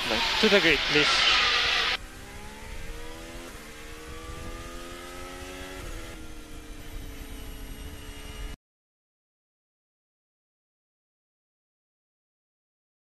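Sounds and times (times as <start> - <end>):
racing car engine revving: 0.0 - 8.6.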